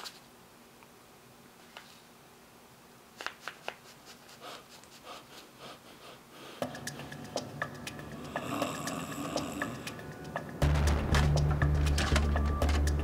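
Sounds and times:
background music: 6.6 - 13.0.

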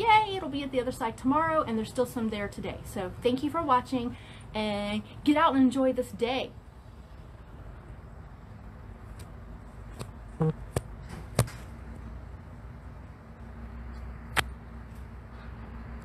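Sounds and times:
sharp clicks and knocks: 9.9 - 11.8.

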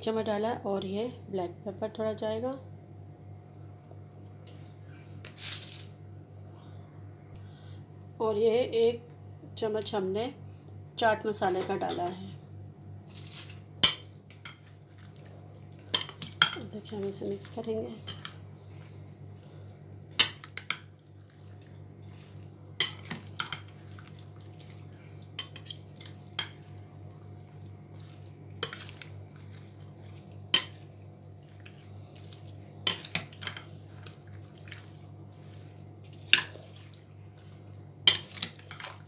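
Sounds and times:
steady low hum: 0.0 - 39.0
spatula stirring fruit in juice: 14.8 - 39.0.

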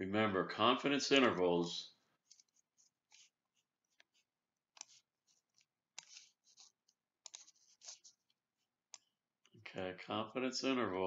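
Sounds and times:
computer mouse clicks and scratches: 2.2 - 9.6.

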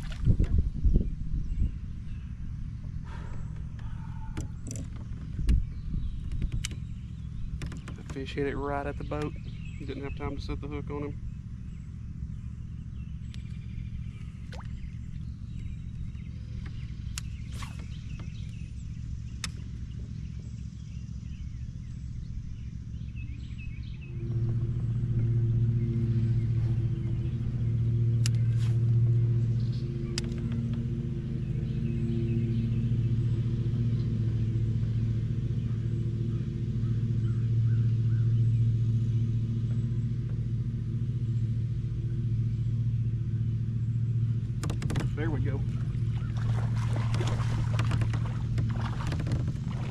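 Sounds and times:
low rumble: 0.0 - 49.9
motorboat engine hum: 0.0 - 49.9
sharp clicks: 6.2 - 6.9.

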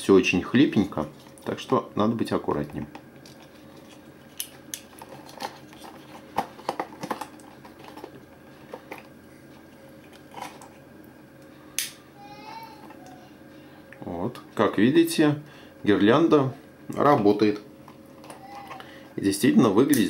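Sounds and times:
plastic packaging rustling: 2.8 - 9.2.

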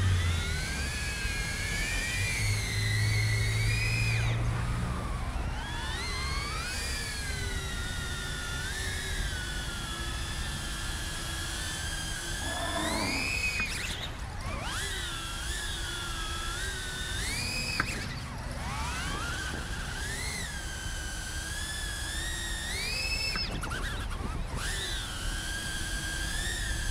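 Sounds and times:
drone propellers whining: 11.8 - 15.6.

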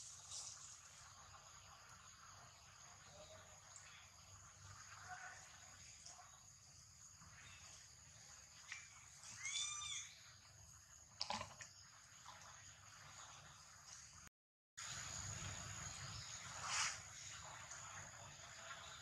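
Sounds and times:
monkey screaming: 9.3 - 10.1.

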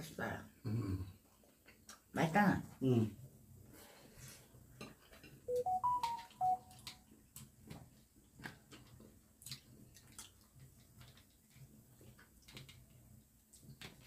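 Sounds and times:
electronic notification chime: 5.5 - 6.7.

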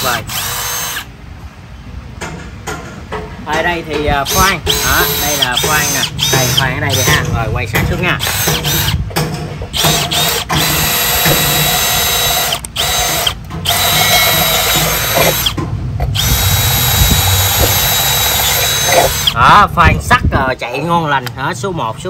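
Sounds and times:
cordless drill boring into steel: 0.0 - 1.1, 4.2 - 7.2, 8.2 - 9.0, 9.8 - 15.6, 16.2 - 19.4.

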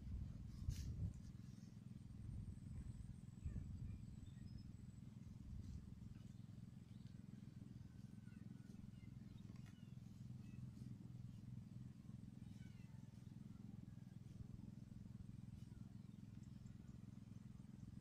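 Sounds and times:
low steady hum: 0.0 - 18.0
faint bird chirps: 2.8 - 11.5, 12.3 - 14.4, 15.4 - 17.9.

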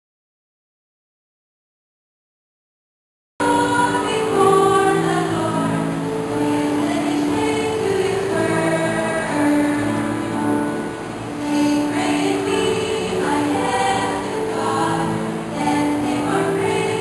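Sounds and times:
choir singing: 3.4 - 17.0.

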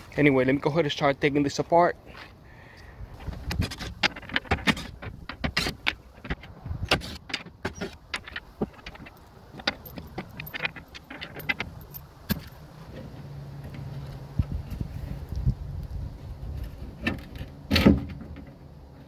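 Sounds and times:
metal screws clicking and clinking: 8.1 - 12.6.

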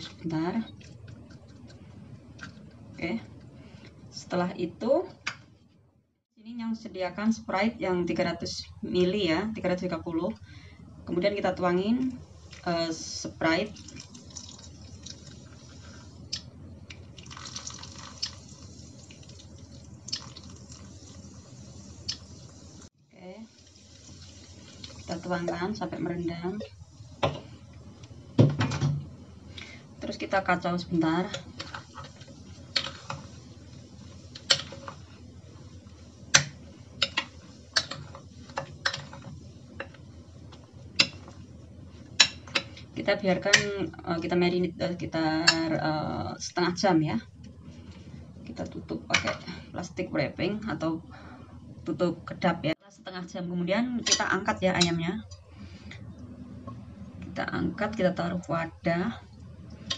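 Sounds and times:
soda fizzing: 13.4 - 16.4, 17.0 - 25.8.

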